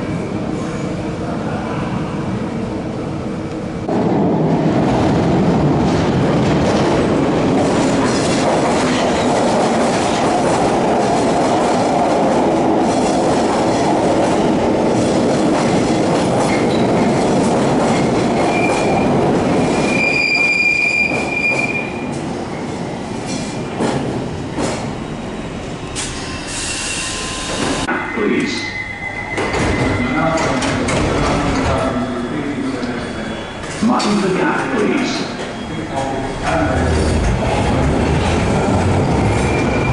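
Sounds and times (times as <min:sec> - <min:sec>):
train wheels rumbling on rail: 0:00.0 - 0:27.9, 0:29.1 - 0:39.9
train brakes squealing: 0:19.6 - 0:22.0, 0:26.0 - 0:30.5, 0:35.2 - 0:36.4, 0:39.3 - 0:39.9.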